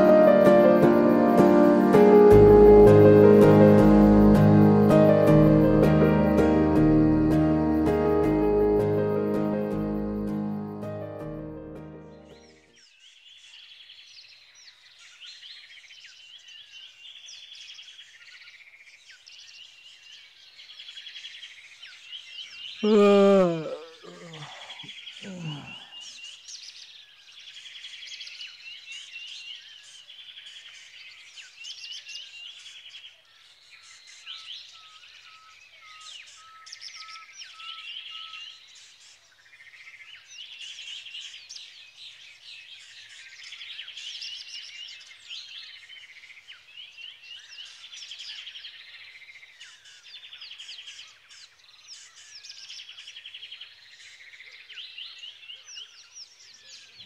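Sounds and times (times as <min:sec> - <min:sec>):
small birds chirping: 0:12.0 - 0:57.0
man yawning: 0:22.8 - 0:26.0.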